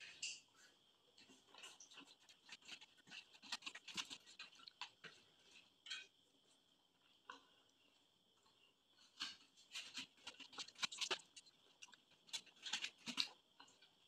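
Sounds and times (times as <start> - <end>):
wet slurping and chewing: 1.2 - 5.6, 9.6 - 14.0
metal spoons scraping fruit: 1.5 - 5.2.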